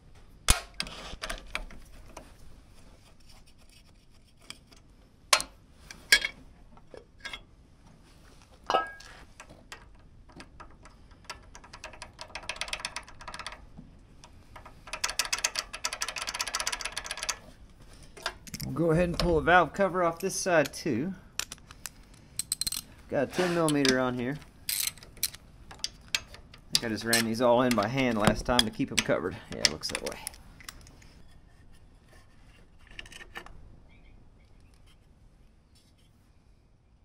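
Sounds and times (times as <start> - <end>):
socket ratchet clicking: 22.4 - 22.9, 24.7 - 27.9.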